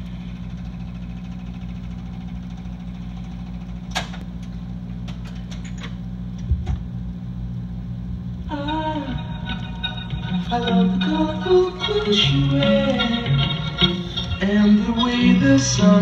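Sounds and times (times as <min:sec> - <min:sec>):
drum machine humming: 0:08.1 - 0:16.0
music: 0:08.5 - 0:16.0.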